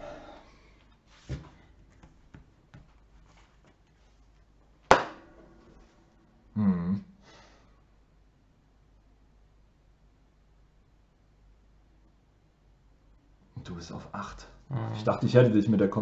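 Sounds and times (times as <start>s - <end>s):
person exhaling: 0.0s - 0.8s, 6.6s - 7.8s
sharp knock: 4.9s - 5.4s
person humming: 6.5s - 7.1s.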